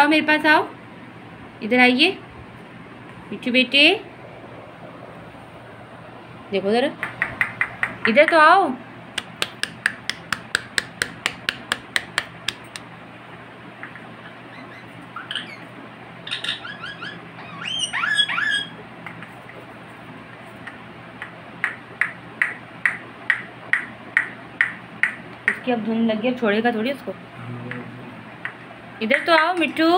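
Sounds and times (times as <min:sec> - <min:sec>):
parakeet tapping plastic cup: 0:07.0 - 0:08.4
parakeet chirping calls: 0:14.0 - 0:18.8.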